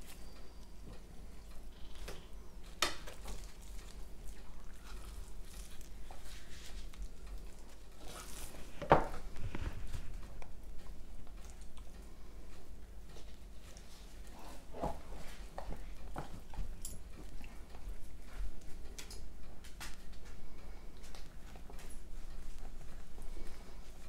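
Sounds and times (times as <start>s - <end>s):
soft rubbing and patting of meat: 2.7s - 11.9s.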